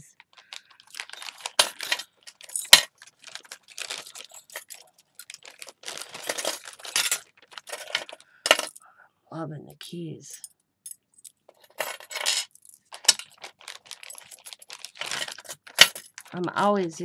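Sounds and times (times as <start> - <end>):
plastic bag rustling: 0.0 - 8.8, 11.6 - 17.0
metal keys clinking and jangling: 0.8 - 3.0, 3.6 - 8.8, 10.3 - 16.3.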